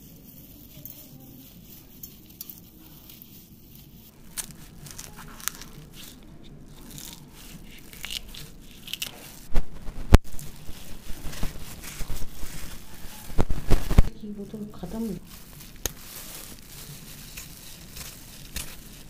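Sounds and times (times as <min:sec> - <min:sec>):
knife cutting chillies: 0:04.1 - 0:09.4, 0:10.4 - 0:19.0.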